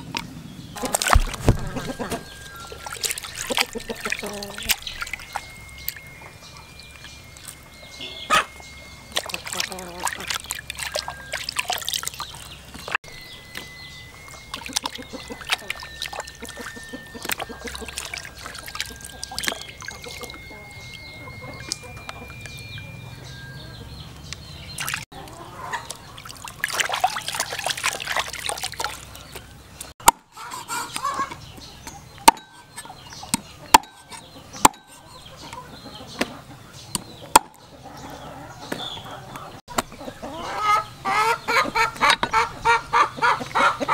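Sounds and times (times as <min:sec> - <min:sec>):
water splashing in a basin: 0:00.8 - 0:07.6, 0:09.0 - 0:13.0, 0:13.7 - 0:23.5, 0:24.7 - 0:29.5
chickens clucking: 0:00.8 - 0:26.6, 0:29.1 - 0:43.9.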